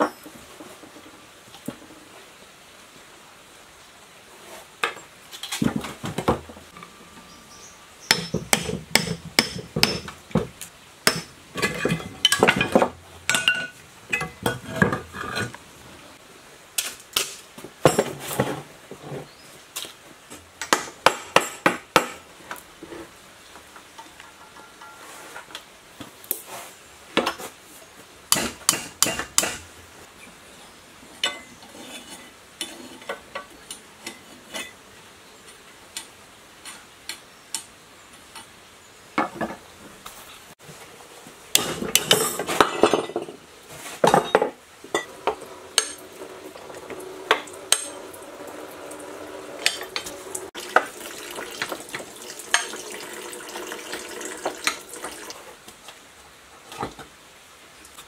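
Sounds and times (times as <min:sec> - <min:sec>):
metal scraping and rattling: 0:11.1 - 0:15.6, 0:45.0 - 0:50.6
light metal taps and clinks: 0:24.0 - 0:25.0.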